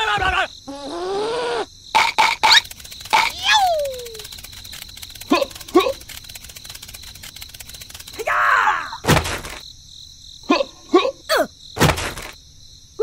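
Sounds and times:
crickets chirping: 0:00.0 - 0:13.0
squeaky character chirps: 0:02.0 - 0:04.2.

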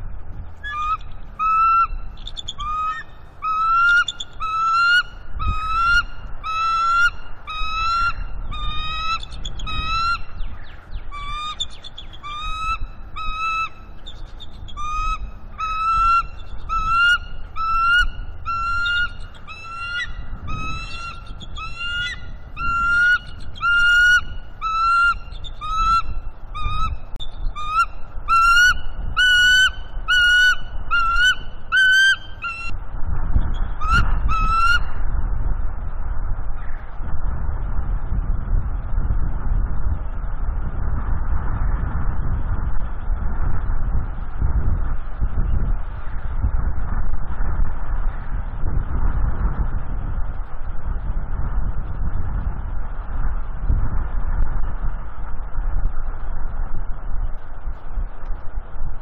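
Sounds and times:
eagles high chirping calls: 0:00.6 - 0:10.2, 0:11.1 - 0:27.0, 0:27.6 - 0:32.7.

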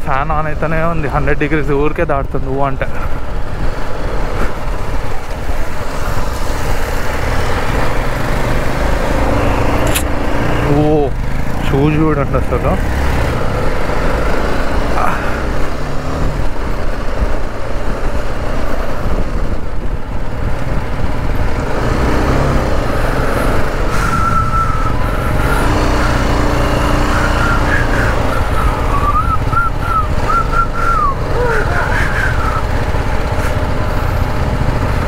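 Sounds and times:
motorcycle engine running: 0:02.9 - 0:35.0.

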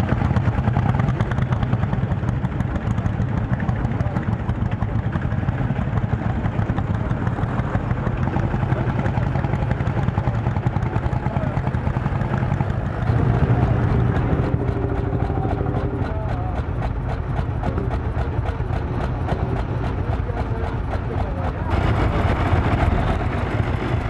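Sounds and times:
tractor engine under heavy load: 0:00.0 - 0:24.0.

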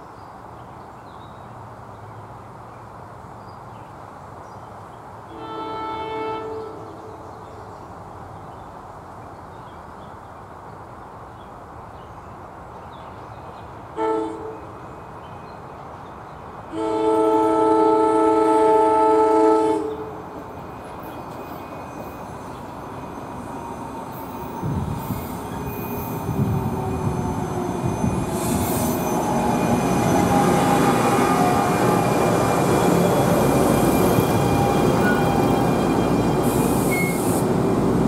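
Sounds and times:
train horn blasts: 0:05.3 - 0:07.2, 0:14.0 - 0:14.7, 0:16.7 - 0:20.2.

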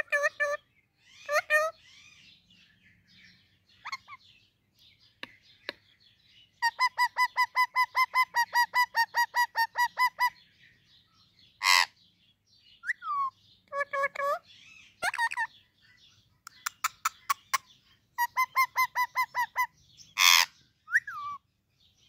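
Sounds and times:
parrot harsh squawk: 0:06.7 - 0:10.3, 0:11.6 - 0:11.9, 0:18.2 - 0:21.4.

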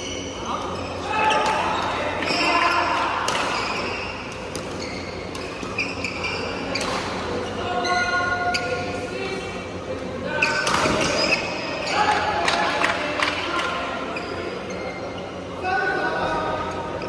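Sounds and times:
sneakers squeaking on court floor: 0:00.0 - 0:09.0, 0:10.3 - 0:12.2, 0:13.8 - 0:15.5
rackets hitting shuttlecock: 0:10.6 - 0:11.4.

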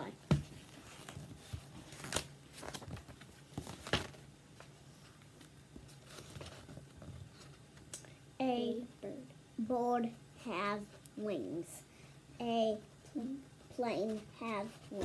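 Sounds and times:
paper pages rustling: 0:00.5 - 0:07.8.

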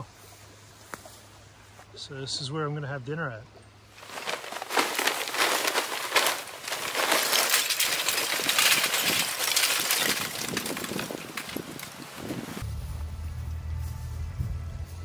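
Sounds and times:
charcoal clattering into metal can: 0:04.0 - 0:12.4.

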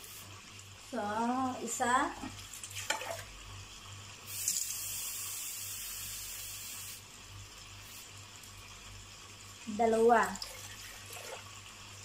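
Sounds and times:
tap water running into a cup: 0:02.2 - 0:03.4, 0:04.3 - 0:05.9, 0:10.2 - 0:12.0.

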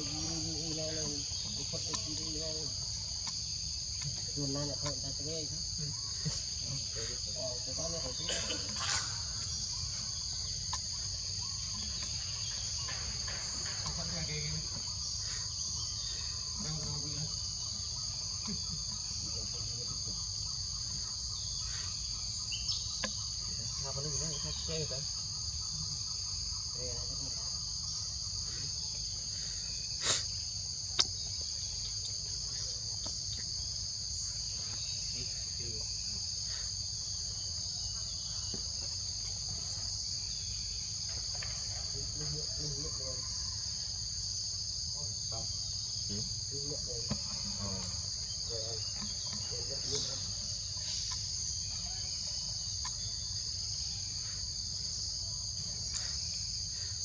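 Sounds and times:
high-pitched insect chorus: 0:00.0 - 0:57.0.

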